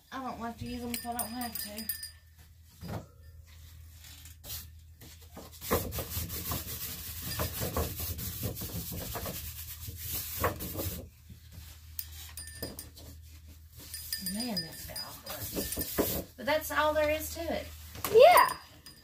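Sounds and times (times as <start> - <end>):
close rubbing and scraping: 3.5 - 18.5.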